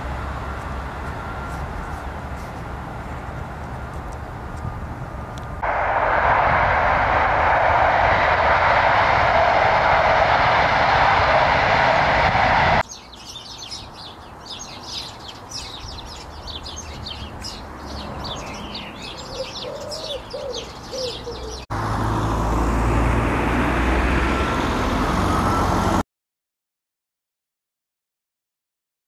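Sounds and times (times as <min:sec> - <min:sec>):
road traffic rumble: 0:00.0 - 0:26.0
lower arched bird calls: 0:12.8 - 0:21.7
small birds chirping: 0:12.8 - 0:21.7.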